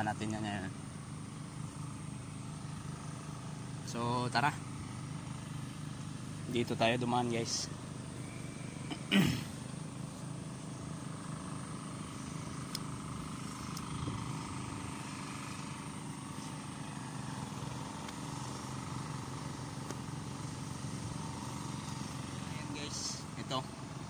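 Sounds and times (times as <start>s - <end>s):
small diesel engine droning: 0.0s - 24.0s.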